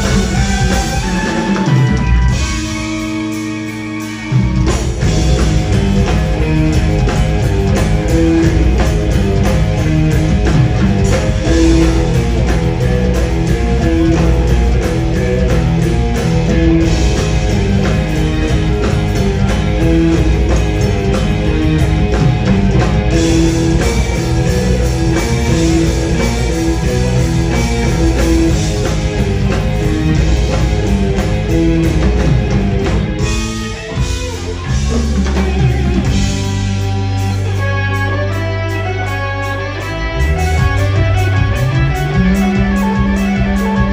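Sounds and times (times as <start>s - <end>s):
live rock band playing: 0.0s - 43.9s.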